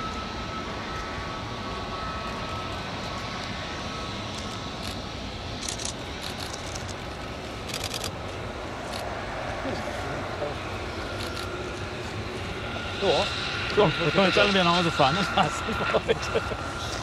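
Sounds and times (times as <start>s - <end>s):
jet engines rumbling: 0.0s - 17.0s.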